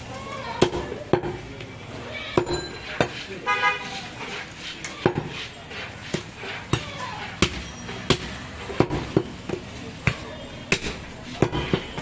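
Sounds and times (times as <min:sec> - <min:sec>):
knife chopping meat on wood: 0:04.9 - 0:12.0.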